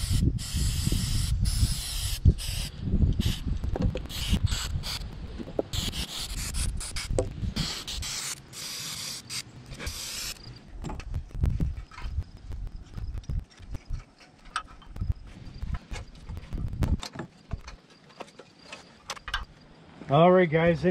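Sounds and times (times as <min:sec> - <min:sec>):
aerosol spray hissing: 0:00.0 - 0:03.4, 0:04.1 - 0:05.1, 0:05.7 - 0:10.5
handling noises: 0:09.6 - 0:20.1.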